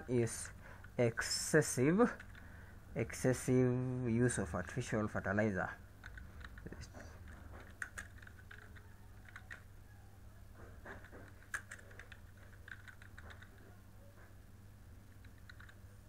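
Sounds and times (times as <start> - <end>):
low electrical hum: 0.0 - 16.0
slow keystrokes on keyboard: 2.2 - 2.5, 6.0 - 9.7, 10.8 - 13.6, 15.1 - 15.8.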